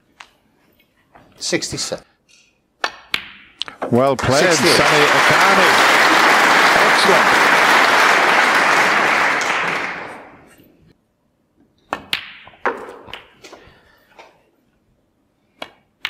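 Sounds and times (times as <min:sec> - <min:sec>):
audience applause: 0:04.2 - 0:10.5.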